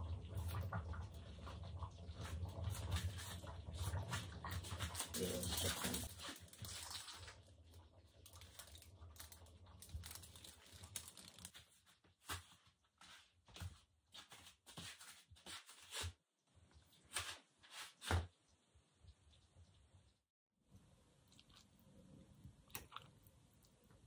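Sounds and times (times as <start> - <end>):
faint rustling and crinkling: 0.4 - 18.3.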